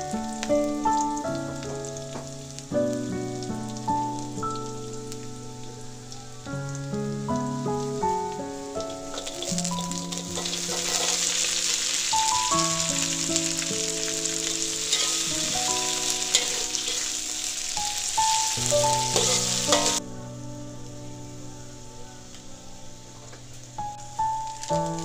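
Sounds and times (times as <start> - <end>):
vegetables sizzling in oil: 0.0 - 20.0, 22.0 - 25.0
melodic background music: 0.0 - 25.0
metal spatula scraping wok: 10.4 - 12.1, 14.5 - 17.4, 18.8 - 20.0.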